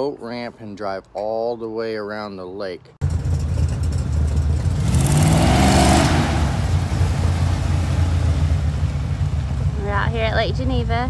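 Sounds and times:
pickup truck driving past: 0:03.0 - 0:10.3.

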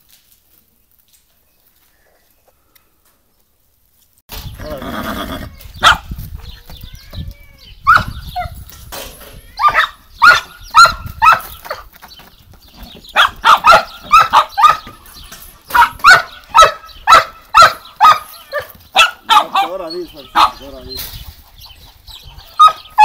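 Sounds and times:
dog barking: 0:05.8 - 0:06.1, 0:07.9 - 0:08.2, 0:09.6 - 0:11.8, 0:13.1 - 0:15.0, 0:15.7 - 0:20.6, 0:22.5 - 0:23.0.

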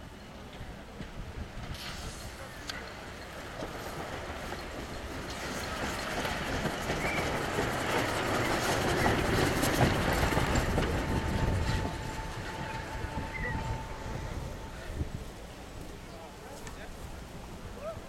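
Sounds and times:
steam locomotive passing: 0:00.0 - 0:18.0
running gear rumbling on rails: 0:02.7 - 0:16.0.

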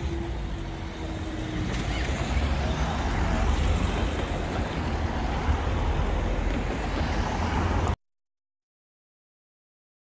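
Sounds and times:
cars driving past: 0:00.0 - 0:08.0.

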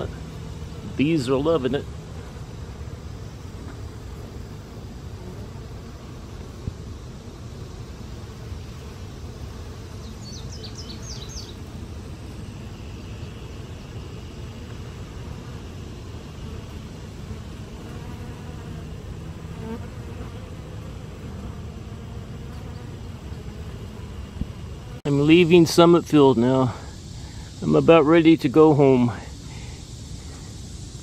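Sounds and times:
bees buzzing: 0:00.0 - 0:31.0.

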